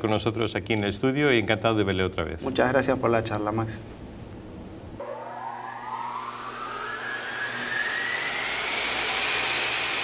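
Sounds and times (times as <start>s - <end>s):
rising whoosh effect: 5.0s - 9.7s.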